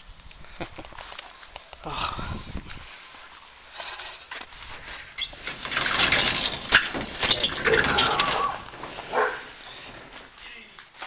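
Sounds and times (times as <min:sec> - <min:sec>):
metal garage door opening: 0:05.2 - 0:10.2
garage door clanking: 0:05.3 - 0:09.4.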